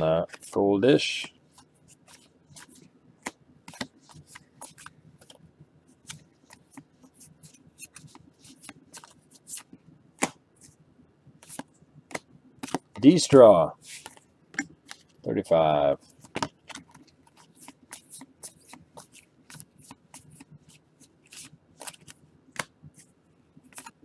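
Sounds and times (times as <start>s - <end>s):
cards flipped and shuffled: 1.6s - 5.4s, 6.0s - 10.4s, 11.4s - 13.2s, 13.9s - 15.2s, 16.1s - 23.1s, 23.7s - 24.0s.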